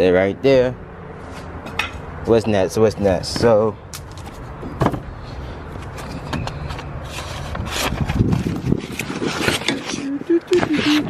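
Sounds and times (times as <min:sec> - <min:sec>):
handling clicks and scrapes: 0:05.6 - 0:11.0.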